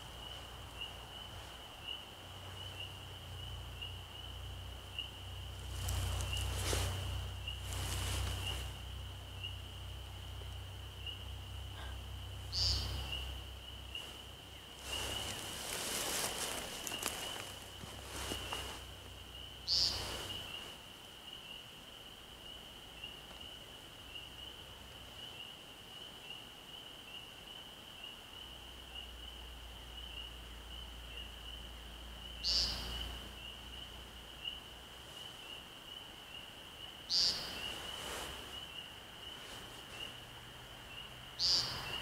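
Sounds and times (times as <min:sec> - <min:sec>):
bird buzzy nasal call: 0:19.7 - 0:20.4.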